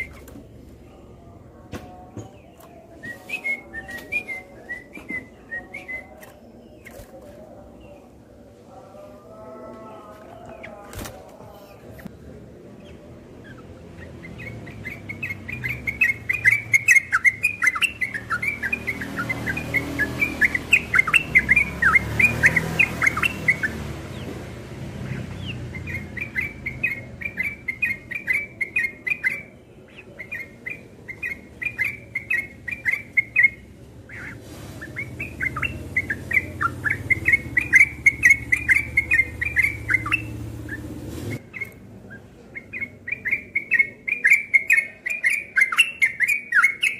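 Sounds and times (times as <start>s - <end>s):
bird chattering song: 0.0s - 0.6s, 10.2s - 46.9s.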